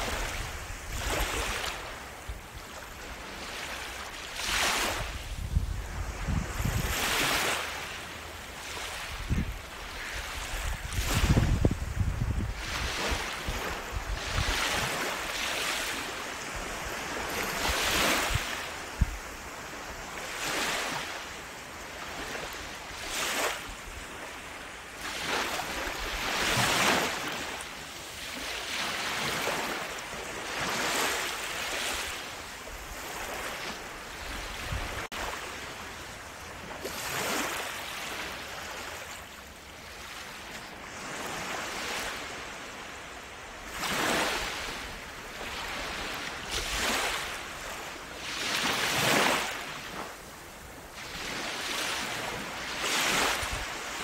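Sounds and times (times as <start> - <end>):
sea waves washing in: 0.0 - 54.0.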